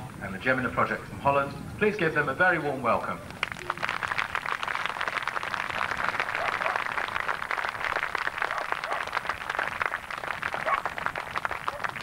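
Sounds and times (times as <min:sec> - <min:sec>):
crowd applauding: 0:03.4 - 0:12.0.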